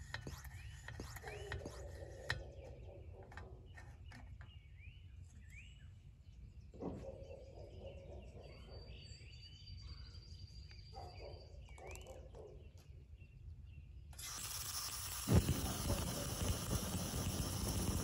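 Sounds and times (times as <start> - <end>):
bird chirping: 0.3 - 14.4.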